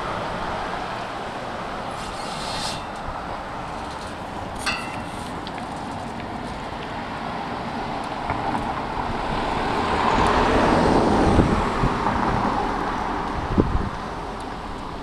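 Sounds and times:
vehicle passing close by: 7.0s - 13.9s.

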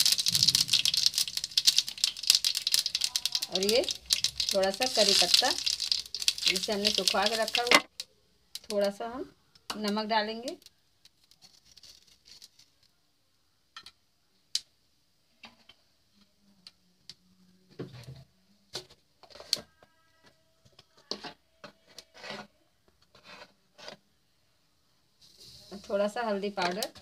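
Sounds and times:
oil sizzling in a pan: 0.0s - 7.9s.

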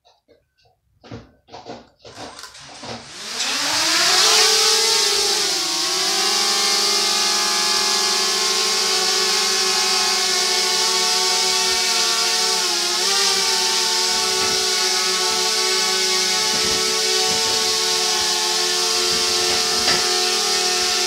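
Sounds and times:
drone propellers buzzing: 7.8s - 21.0s.

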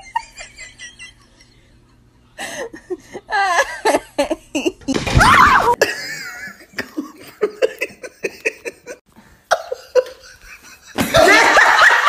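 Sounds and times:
person laughing and giggling: 0.0s - 1.8s, 2.4s - 12.0s
person crying out: 5.1s - 5.8s.

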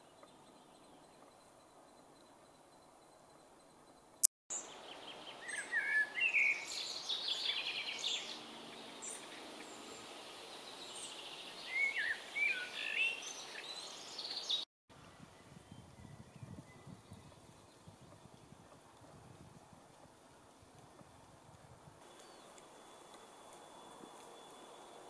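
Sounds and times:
songbirds singing: 0.0s - 3.9s, 4.5s - 18.8s, 22.0s - 25.0s
faint outdoor hiss: 0.0s - 25.0s.

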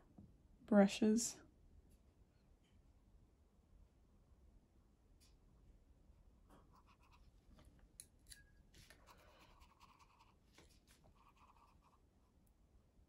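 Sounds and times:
brush stroking paper: 8.8s - 12.0s.

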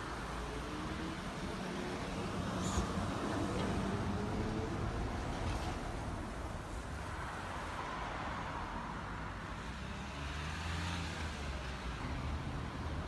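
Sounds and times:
trolleybus humming: 0.0s - 6.8s
light traffic: 0.0s - 13.0s.

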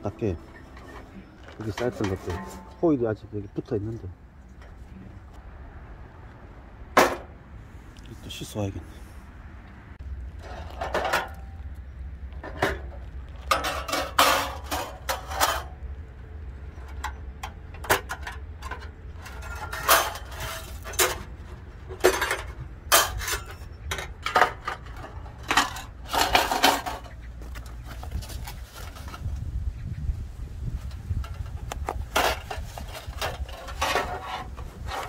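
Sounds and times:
metal panels clanking: 0.0s - 3.1s, 12.4s - 15.8s, 16.8s - 27.6s, 31.0s - 35.0s.

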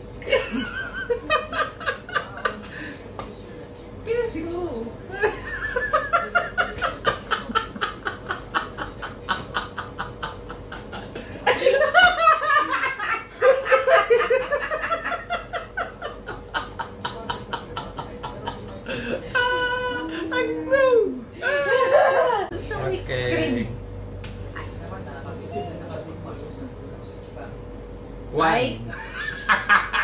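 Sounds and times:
woman laughing: 0.2s - 2.7s, 5.1s - 22.6s
man laughing: 0.2s - 2.8s, 5.1s - 20.6s.

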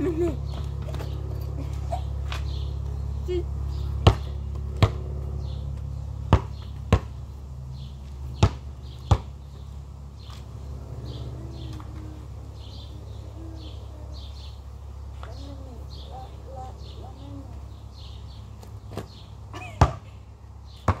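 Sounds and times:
steady low rumble: 0.0s - 20.8s
basketball bouncing on asphalt: 3.9s - 10.6s, 18.6s - 21.0s.

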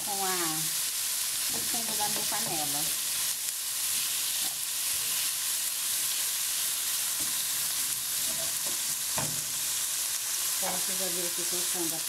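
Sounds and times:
meat sizzling in hot oil: 0.0s - 12.0s
spatula scraping a pan: 7.0s - 9.8s.

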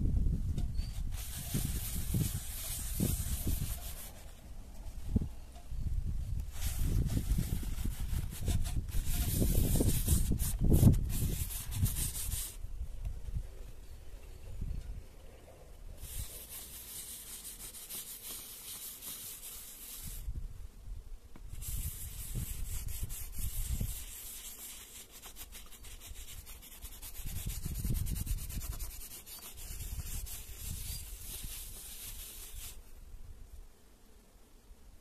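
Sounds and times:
cloth wiping leather: 1.1s - 4.4s, 6.6s - 12.6s, 16.0s - 20.2s, 21.6s - 32.8s.

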